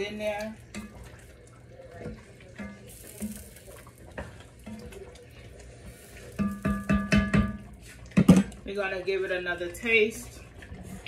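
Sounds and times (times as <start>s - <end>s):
spatula stirring sloshing sauce: 0.2s - 8.6s
spatula knocking against pot: 6.4s - 8.5s.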